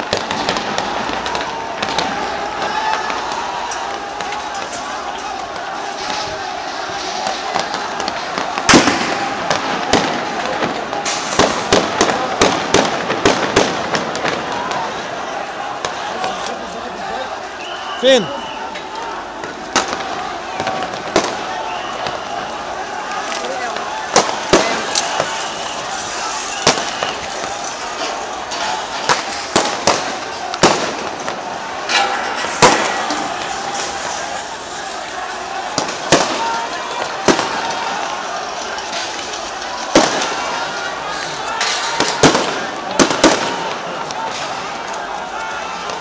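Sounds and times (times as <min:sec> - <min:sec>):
background noise: 0:00.0 - 0:46.0
steady background noise: 0:00.0 - 0:46.0
sharp gunshots: 0:07.5 - 0:14.7.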